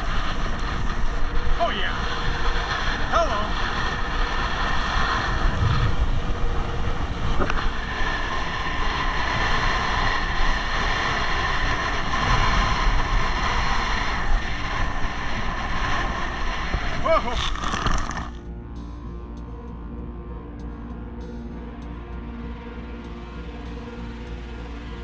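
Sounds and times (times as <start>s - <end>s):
wind roaring over microphone: 0.0s - 18.7s.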